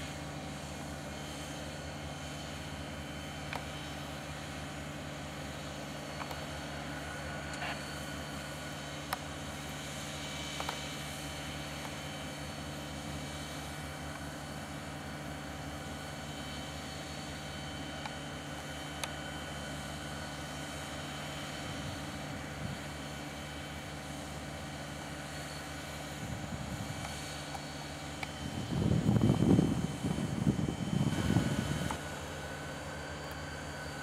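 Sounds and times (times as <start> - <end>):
diesel locomotives idling: 0.0 - 34.0.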